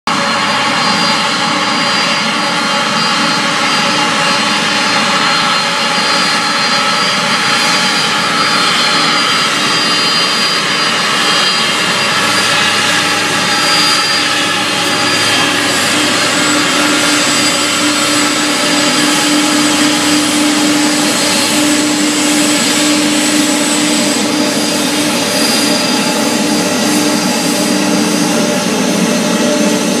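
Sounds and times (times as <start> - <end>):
jet engines roaring: 0.1 - 30.0
high thin whistle: 0.5 - 26.2.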